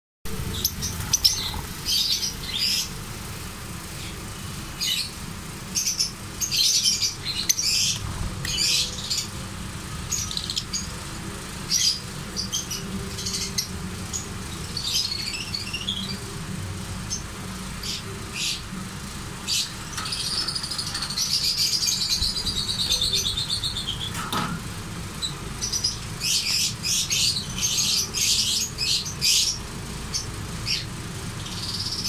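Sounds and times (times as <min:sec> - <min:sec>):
lovebirds chirping: 0:00.3 - 0:24.5, 0:25.1 - 0:32.0.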